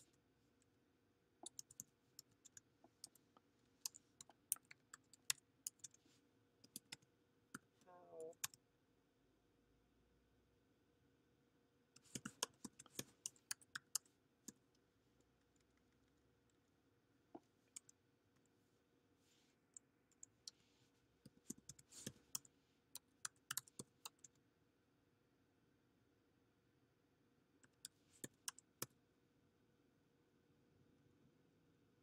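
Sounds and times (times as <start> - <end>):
typing on keyboard: 1.4 - 6.0, 6.6 - 7.0, 12.0 - 14.6, 21.3 - 24.4.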